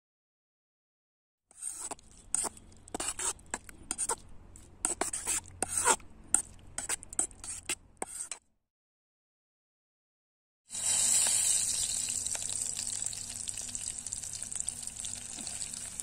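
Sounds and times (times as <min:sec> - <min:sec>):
knife scraping in steel bowl: 0:01.5 - 0:04.2, 0:04.9 - 0:08.4.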